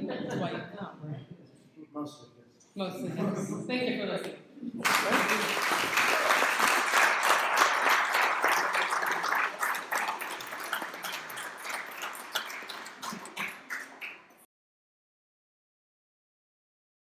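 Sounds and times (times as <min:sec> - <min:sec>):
audience applauding: 0:04.8 - 0:14.5.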